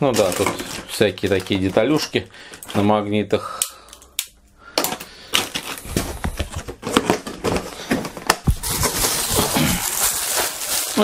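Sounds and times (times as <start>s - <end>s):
plastic pieces clattering in box: 0.0s - 2.9s, 4.8s - 11.0s
plastic wrapping crinkling: 0.0s - 3.0s, 5.3s - 11.0s.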